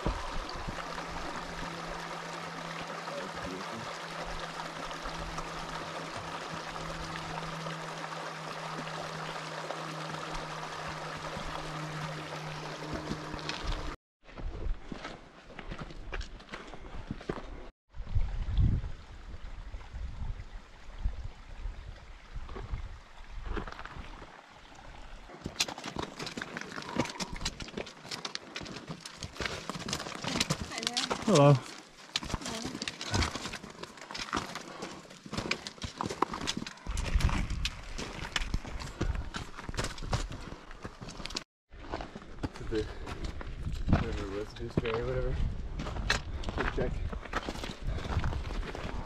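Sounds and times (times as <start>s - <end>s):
low steady hum: 0.0s - 14.0s
running water rushing: 0.0s - 14.0s
horse hooves clopping on rocks: 25.3s - 49.0s.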